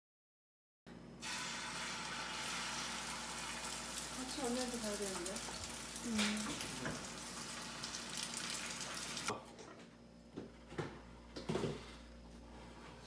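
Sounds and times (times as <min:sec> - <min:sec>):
egg sizzling in a pan: 0:01.2 - 0:09.3.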